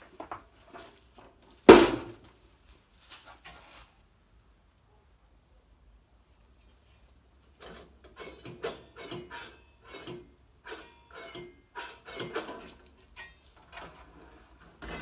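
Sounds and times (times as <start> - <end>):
metal drawer slides scraping: 7.6 - 12.9, 13.7 - 15.0.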